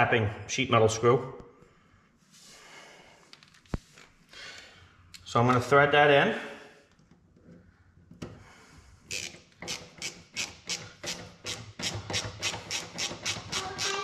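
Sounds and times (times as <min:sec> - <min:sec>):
screw grating strokes: 0:09.1 - 0:14.0.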